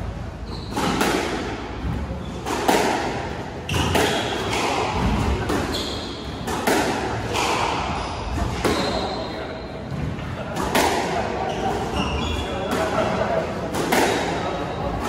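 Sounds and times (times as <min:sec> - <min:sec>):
shoes squeaking on wooden floor: 0:00.4 - 0:01.0, 0:05.7 - 0:06.2, 0:11.5 - 0:12.5
squash ball striking racquets and walls: 0:00.4 - 0:15.0.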